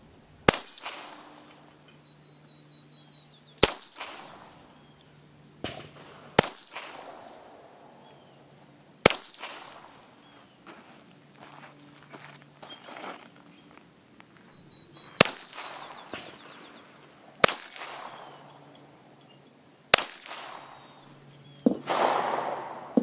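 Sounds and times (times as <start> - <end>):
pistol shots with echo: 0.4 - 1.8, 3.6 - 5.0, 5.6 - 10.3, 15.0 - 19.0, 19.9 - 23.0.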